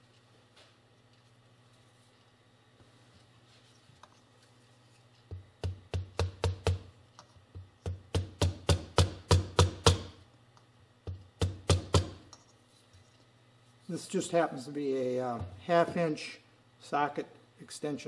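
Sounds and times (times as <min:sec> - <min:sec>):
hammer tapping metal: 0:07.6 - 0:10.2, 0:11.0 - 0:12.4.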